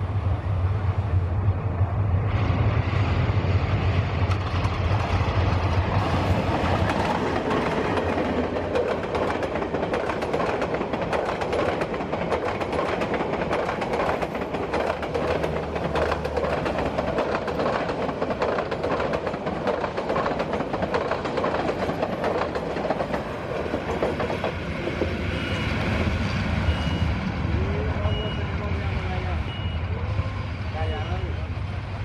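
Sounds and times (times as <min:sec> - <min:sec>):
train rumbling past: 0:00.0 - 0:32.0
wheels clattering over rail joints: 0:04.3 - 0:24.6.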